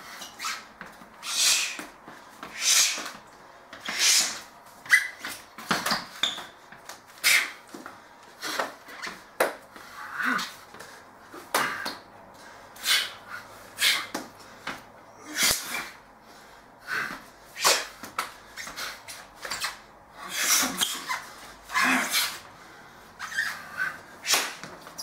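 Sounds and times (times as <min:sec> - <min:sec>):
hand slaps against body: 0:24.3 - 0:24.7.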